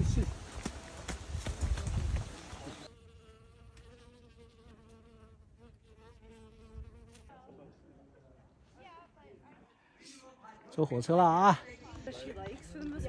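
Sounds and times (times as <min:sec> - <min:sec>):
flying insect buzzing: 0:02.6 - 0:07.3.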